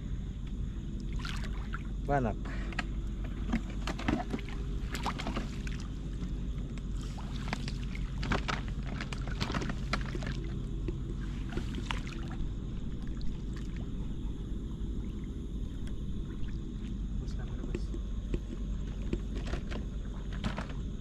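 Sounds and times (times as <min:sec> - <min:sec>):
steady low rumble: 0:00.0 - 0:21.0
seawater splashing and sloshing: 0:01.0 - 0:02.0, 0:03.3 - 0:17.4.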